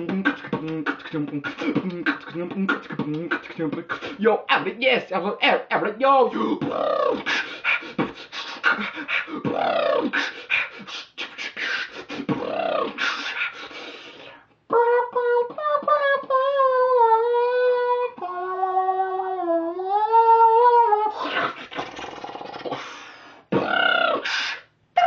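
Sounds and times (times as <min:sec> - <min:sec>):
breathy beatbox-like mouth noises: 0:00.0 - 0:04.2, 0:06.4 - 0:16.6, 0:21.0 - 0:24.7.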